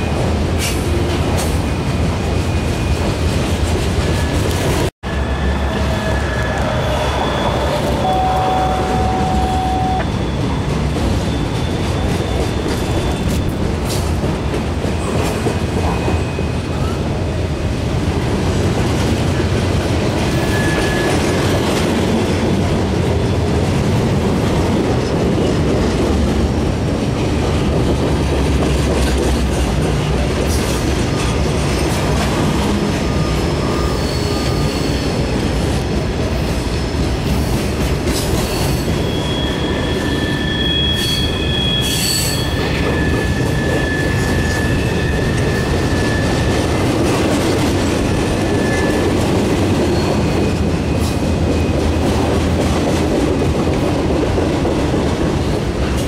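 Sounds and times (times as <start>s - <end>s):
freight cars rolling on rails: 0.0s - 56.0s
high-pitched wheel squeals: 5.1s - 13.7s, 20.3s - 21.7s, 33.0s - 35.4s, 38.5s - 46.9s, 48.1s - 49.2s.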